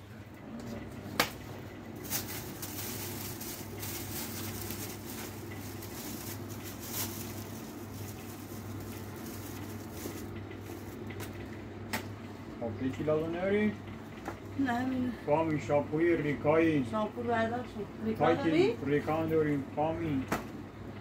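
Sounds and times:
steady low hum: 0.0s - 21.0s
plastic bags rustling: 1.9s - 11.4s.

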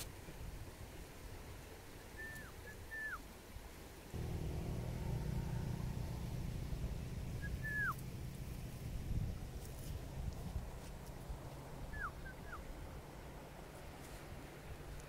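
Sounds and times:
whistled bird calls: 2.1s - 3.2s, 7.4s - 8.0s, 11.9s - 12.7s
low engine-like hum: 4.2s - 15.0s.

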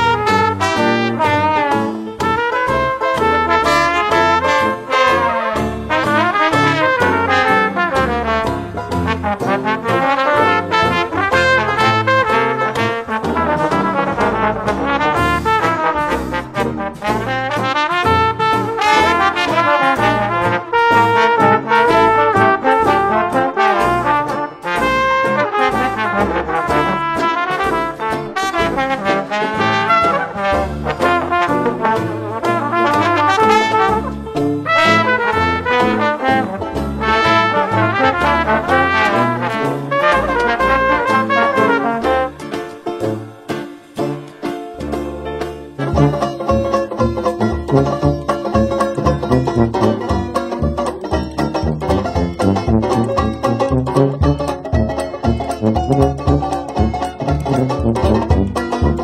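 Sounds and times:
jazz brass band playing: 0.0s - 59.0s.

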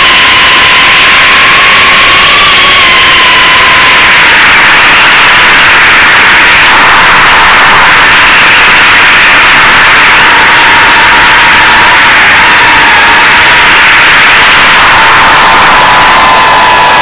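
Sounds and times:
thin motor whine: 12.5s - 17.0s.

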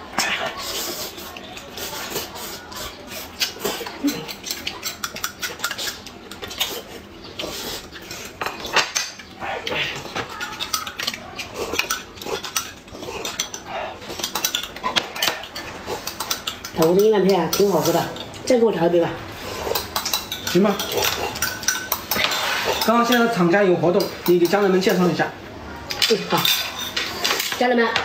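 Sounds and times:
utensils clinking on plates and mugs: 0.0s - 25.2s, 25.9s - 28.0s
slurping: 0.2s - 8.4s.

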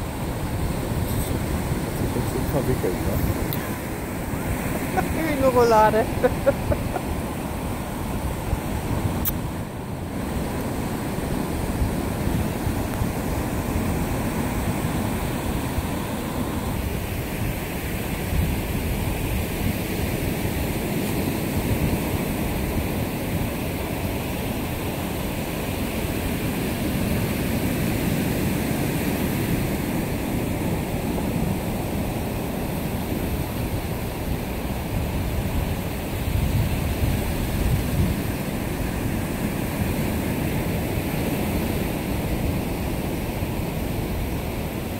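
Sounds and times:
sea surf: 0.0s - 44.9s
wind rumbling on microphone: 0.0s - 44.9s.

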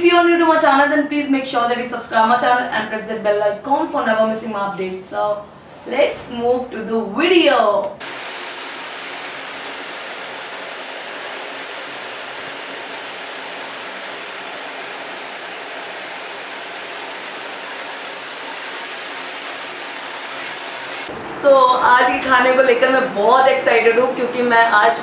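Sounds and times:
steady hiss: 8.0s - 21.1s.

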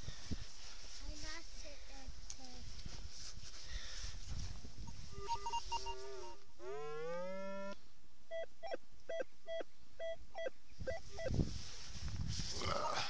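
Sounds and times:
metal detector tones: 4.9s - 6.4s, 8.3s - 11.4s
short repeated beeps: 5.2s - 6.4s, 8.3s - 11.4s.

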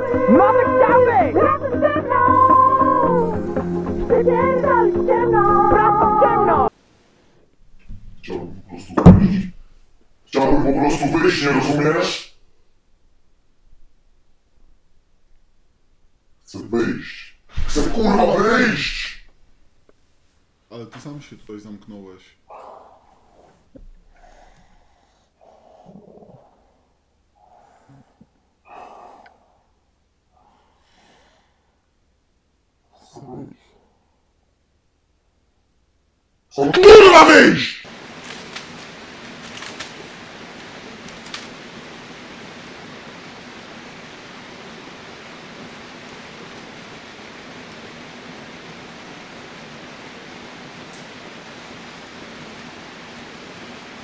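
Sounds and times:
steady hiss: 3.4s - 54.0s
man breathing heavily: 22.6s - 31.9s
short crackle: 37.9s - 42.3s.

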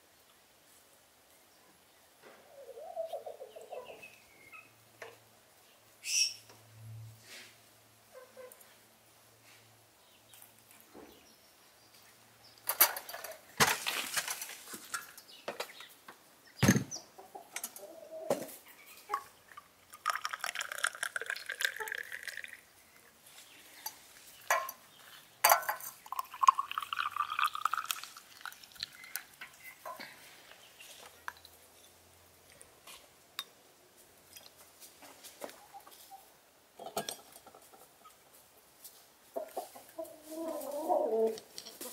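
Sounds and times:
hens clucking: 2.3s - 4.1s, 16.9s - 19.4s, 39.3s - 41.9s
hot water pouring into glass: 19.9s - 22.7s, 26.0s - 29.3s
dishes and cutlery clinking: 24.5s - 24.8s, 25.4s - 26.0s, 36.8s - 37.8s.

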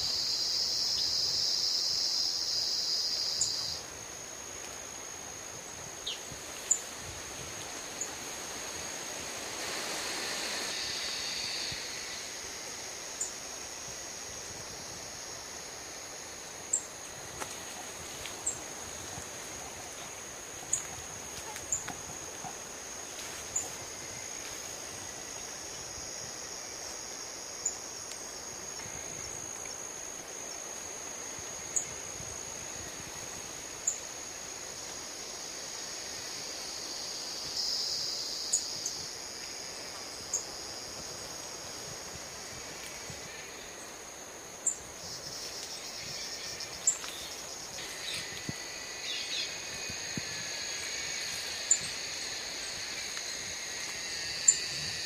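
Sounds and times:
high-pitched insect drone: 0.0s - 4.2s, 9.3s - 17.0s, 35.4s - 55.0s.

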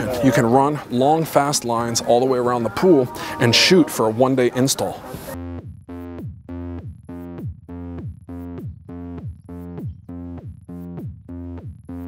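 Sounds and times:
electronic synthesizer music: 2.5s - 12.0s.

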